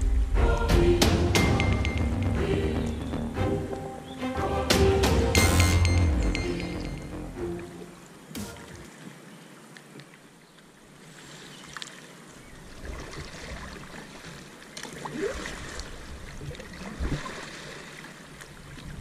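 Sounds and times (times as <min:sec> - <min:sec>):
paddle strokes splashing water: 0:07.6 - 0:19.0.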